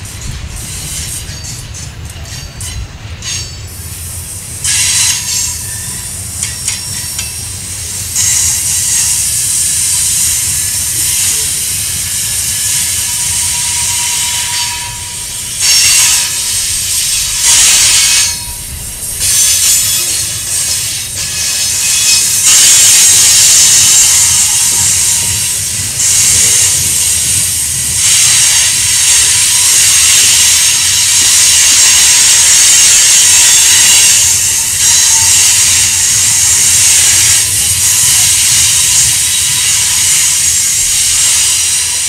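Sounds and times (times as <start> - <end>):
train wheels rumbling on rail: 0.0 - 42.0
high-pitched wheel squeal: 12.3 - 26.8.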